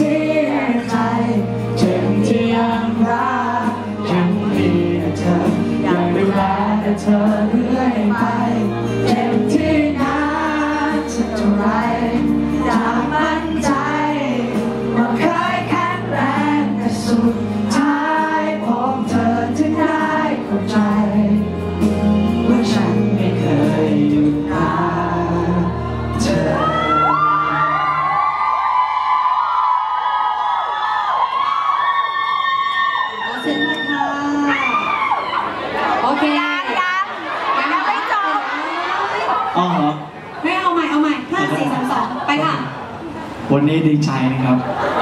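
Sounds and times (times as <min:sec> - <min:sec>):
man singing into microphone: 0:00.0 - 0:28.4
backing music: 0:00.0 - 0:29.0
audience cheering: 0:26.4 - 0:39.7.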